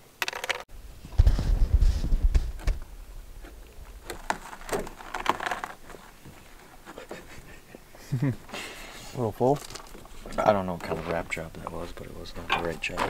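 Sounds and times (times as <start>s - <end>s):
rustling: 0.3s - 13.0s
microphone handling thumps: 1.0s - 5.0s.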